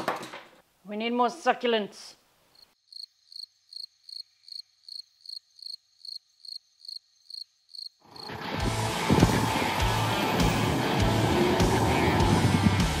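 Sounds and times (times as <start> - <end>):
cricket chirping: 2.5 - 8.4
vehicle sound: 8.1 - 13.0
music: 8.2 - 13.0.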